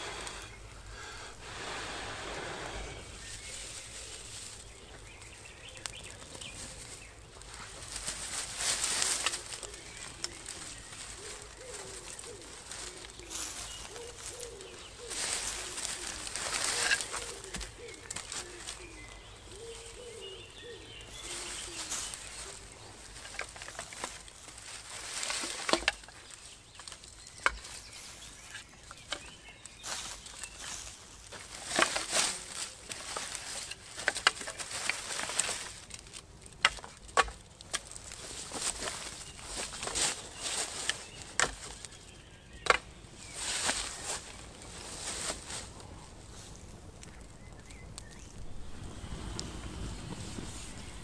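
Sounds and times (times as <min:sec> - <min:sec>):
rustling: 0:00.0 - 0:51.0
pigeon cooing: 0:11.1 - 0:21.9.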